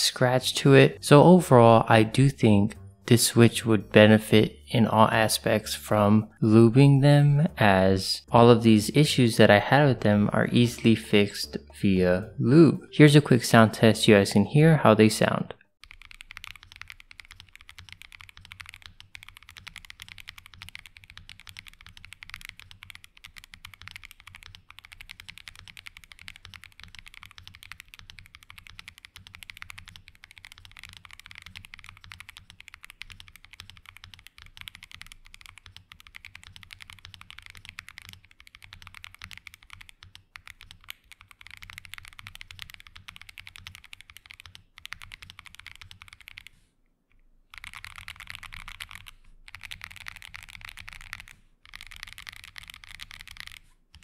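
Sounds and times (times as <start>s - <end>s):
fast typing on mechanical keyboard: 15.8s - 46.5s, 47.5s - 54.0s.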